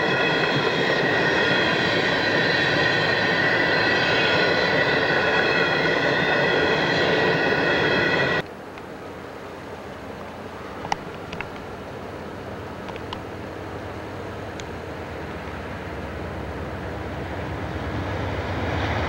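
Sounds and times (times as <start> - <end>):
high-pitched ringing: 0.0 - 8.4
train wheels rumbling on rail: 0.0 - 8.4, 10.7 - 19.0.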